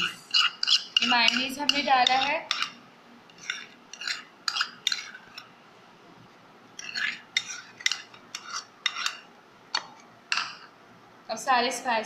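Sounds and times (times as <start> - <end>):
spoon scraping and clinking bowl: 0.0 - 5.5, 6.8 - 9.3, 10.3 - 10.7.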